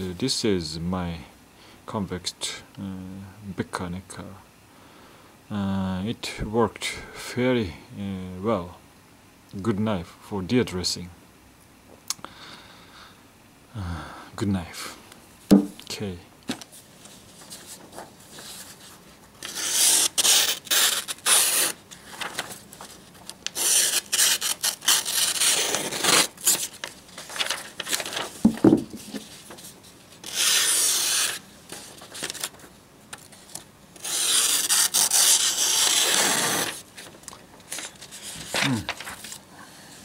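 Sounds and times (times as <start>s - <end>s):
short knock: 15.5s - 15.8s
paper rustling: 16.5s - 39.4s
knife slicing paper: 19.4s - 22.6s, 23.4s - 28.4s, 30.2s - 31.4s, 34.0s - 36.8s.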